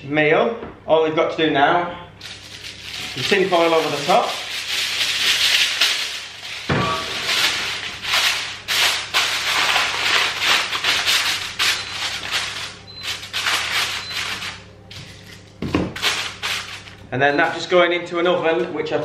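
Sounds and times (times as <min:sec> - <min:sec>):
kitchen foil crinkling: 0:02.2 - 0:17.1.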